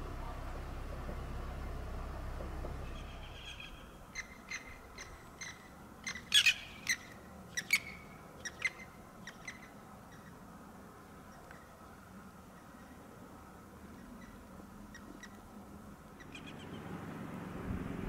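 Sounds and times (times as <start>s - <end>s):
birds calling: 2.5s - 10.4s, 16.1s - 16.9s.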